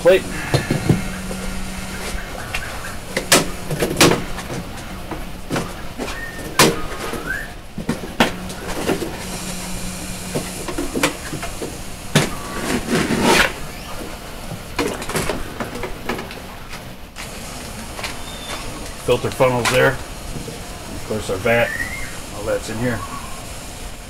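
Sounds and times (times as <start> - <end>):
short rising squeak: 6.0 - 7.6
foam scraping against plastic: 12.2 - 13.9.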